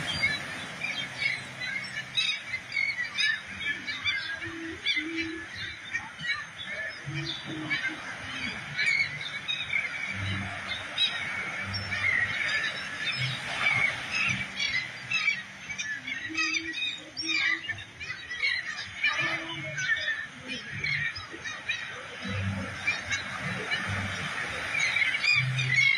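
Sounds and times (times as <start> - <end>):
seabirds squawking: 0.0 - 25.9.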